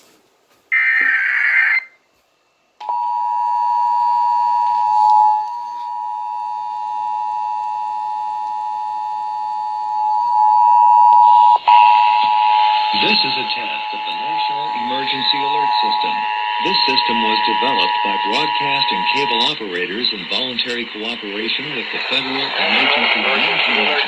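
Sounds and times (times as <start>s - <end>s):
two-tone alert signal: 10.7s - 19.6s
screechy digital data burst: 11.6s - 23.3s.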